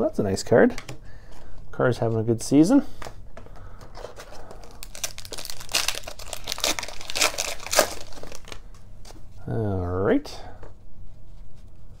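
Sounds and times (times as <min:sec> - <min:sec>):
foil wrapper crinkling and tearing: 0:04.3 - 0:08.8.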